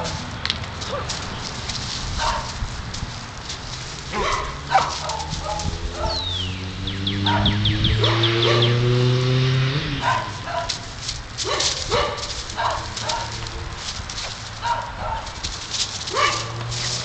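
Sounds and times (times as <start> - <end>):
dog barking: 0.8 - 1.2, 2.2 - 2.6, 4.1 - 6.3, 7.2 - 8.8, 10.0 - 13.6, 14.6 - 15.4, 16.1 - 16.7.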